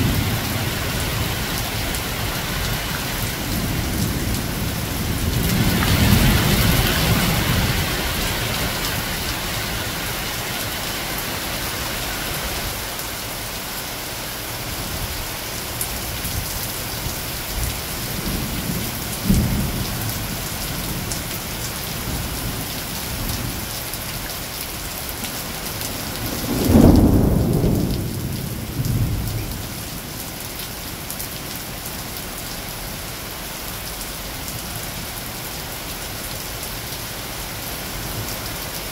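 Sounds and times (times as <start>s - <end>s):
heavy rain on foliage: 0.0s - 38.9s
thunder rumbling: 26.2s - 29.7s.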